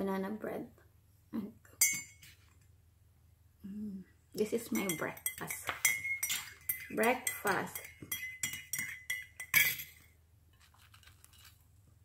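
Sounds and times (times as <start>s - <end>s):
spoon clinking in ceramic mug: 1.8s - 2.3s, 4.7s - 10.1s.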